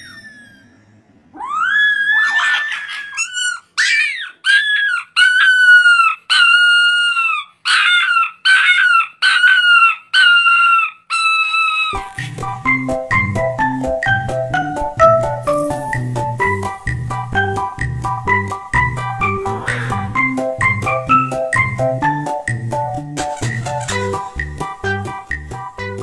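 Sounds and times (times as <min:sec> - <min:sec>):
puppy howling: 0:00.0 - 0:12.0, 0:19.1 - 0:20.4
organ music: 0:12.0 - 0:26.0.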